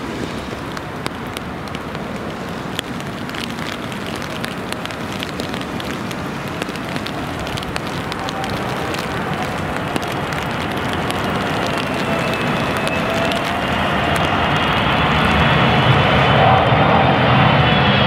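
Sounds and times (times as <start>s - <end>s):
raindrops ticking close by: 0.0s - 16.4s
rain pattering: 0.0s - 16.5s
jet aircraft engines rushing: 0.0s - 18.0s.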